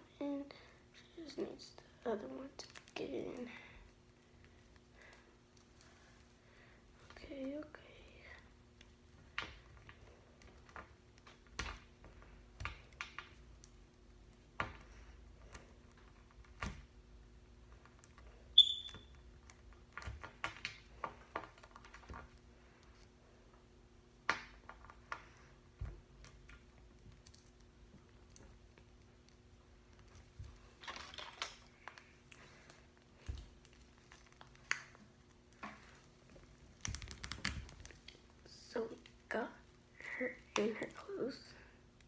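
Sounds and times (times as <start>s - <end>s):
faint steady hum: 0.0s - 42.0s
brief high squeak: 18.6s - 19.0s.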